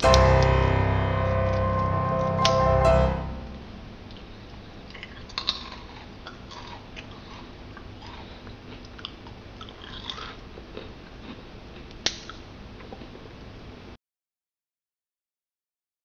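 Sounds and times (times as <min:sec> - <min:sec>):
crackers crunching: 0:04.9 - 0:13.2.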